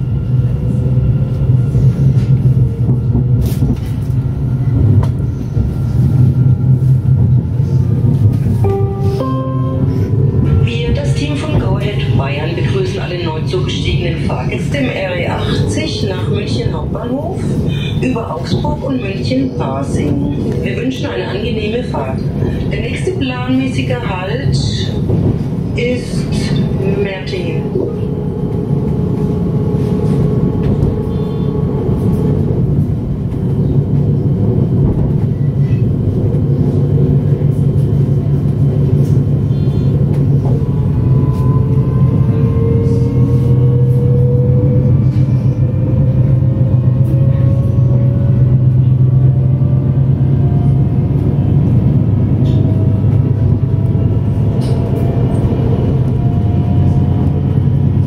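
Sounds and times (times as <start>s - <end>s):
train rumble: 0.0s - 58.0s
electric train traction whine: 24.6s - 58.0s.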